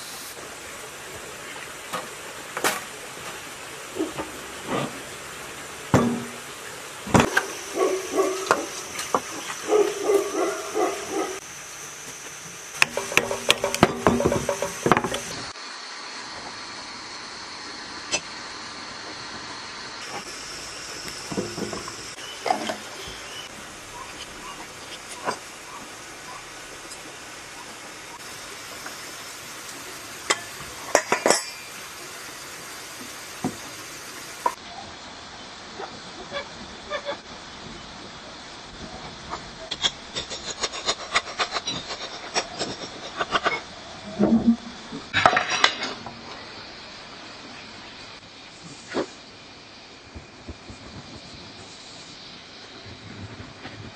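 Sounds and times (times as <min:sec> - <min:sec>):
faint steady hiss: 0:00.0 - 0:53.9
metal engine parts knocking and clinking: 0:12.8 - 0:15.4, 0:30.2 - 0:31.8.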